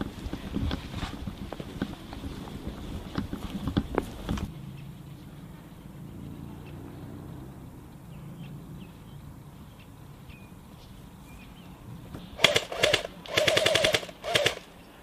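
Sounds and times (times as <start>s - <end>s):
airsoft gun firing bursts: 12.4s - 14.8s.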